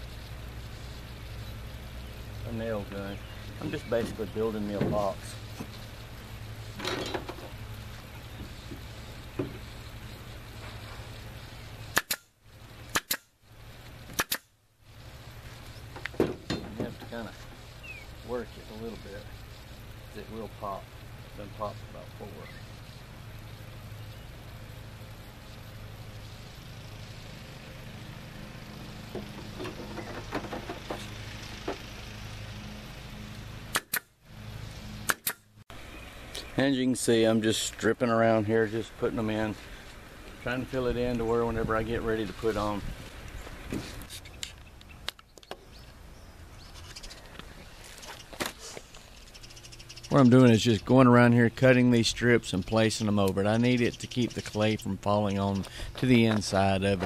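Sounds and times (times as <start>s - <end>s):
steady low hum: 0.0s - 57.0s
nail gun firing into wood: 11.9s - 12.3s, 12.9s - 13.3s, 14.1s - 14.5s, 33.7s - 34.1s, 35.1s - 35.4s.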